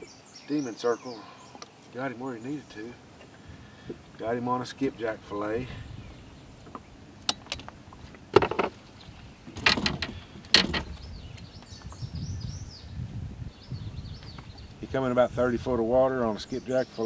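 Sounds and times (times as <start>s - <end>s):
knocks and rattles of net and fish: 7.4s - 8.8s, 9.4s - 11.0s.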